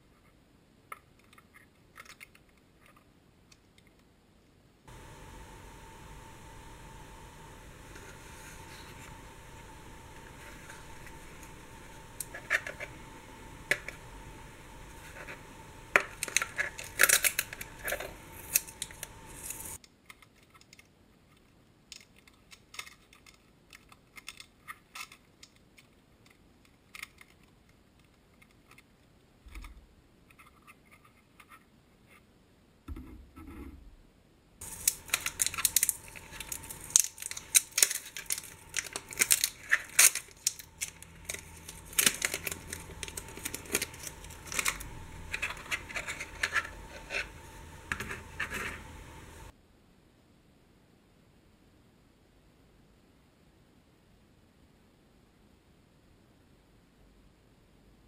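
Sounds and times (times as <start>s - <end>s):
paper sticker peeling off: 6.0s - 19.8s, 34.6s - 49.5s
scratchy rustles: 6.4s - 19.8s, 34.6s - 49.5s.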